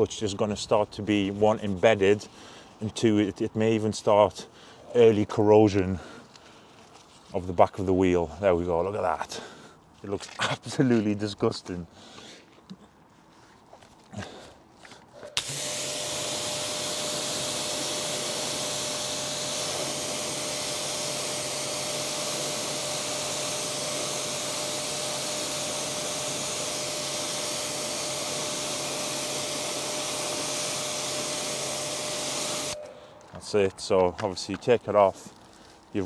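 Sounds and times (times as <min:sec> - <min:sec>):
pressure washer hum: 0:15.3 - 0:33.1
pressure washer water jet hissing: 0:15.4 - 0:32.8.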